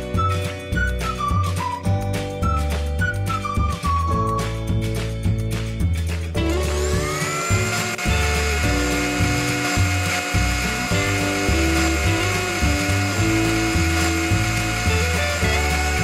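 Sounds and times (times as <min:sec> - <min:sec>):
small electric motor whining: 0:06.5 - 0:16.0.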